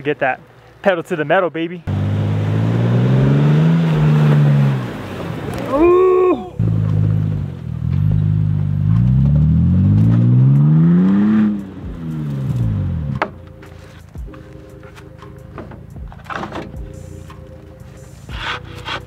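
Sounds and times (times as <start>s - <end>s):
truck engine revving: 1.9s - 5.8s, 6.6s - 13.4s.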